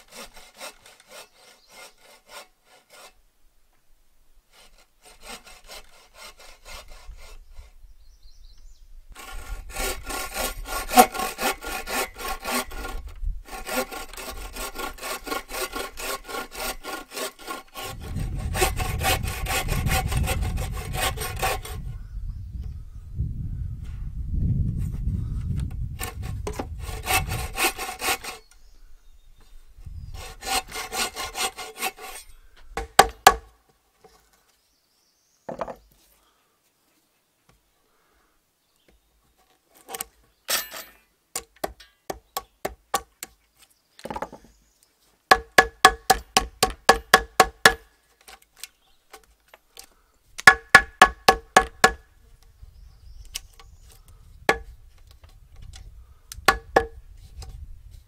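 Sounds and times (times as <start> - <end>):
frame saw rasping through log: 0.0 - 3.2, 4.5 - 7.7, 9.2 - 21.8, 26.0 - 28.5, 30.1 - 33.4.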